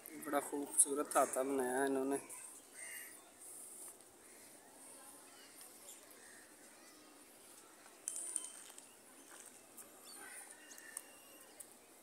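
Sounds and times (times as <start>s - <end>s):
small birds chirping: 4.2s - 12.0s.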